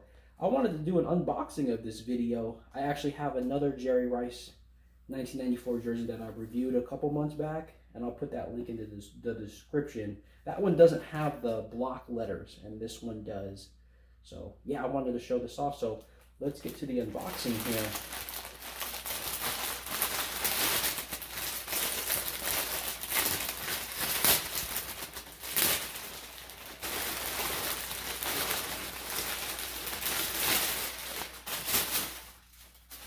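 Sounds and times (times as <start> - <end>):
plastic bag crinkling: 16.5 - 33.0.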